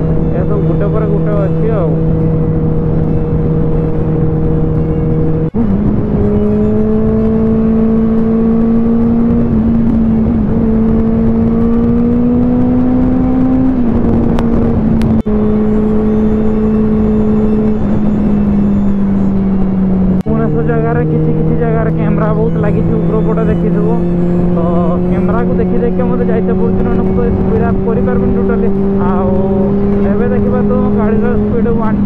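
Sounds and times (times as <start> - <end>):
motorcycle engine cruising: 0.0 - 32.0
wind noise: 0.0 - 32.0.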